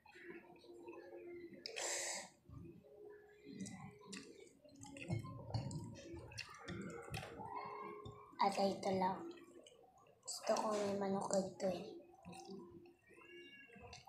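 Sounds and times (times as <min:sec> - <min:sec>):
chewing and lip smacks: 0:03.6 - 0:08.2.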